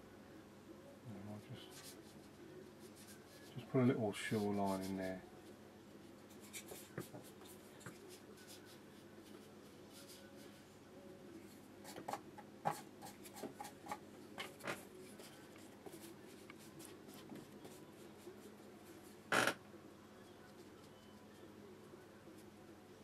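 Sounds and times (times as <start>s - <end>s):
brush scratching on paper: 1.6s - 5.1s, 6.1s - 10.6s.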